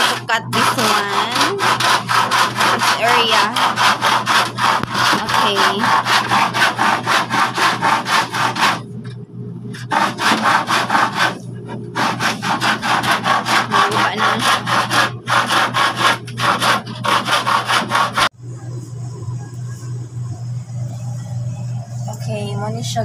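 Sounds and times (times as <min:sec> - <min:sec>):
handsaw cutting wood: 0:00.0 - 0:08.8, 0:09.8 - 0:11.4, 0:12.0 - 0:18.3.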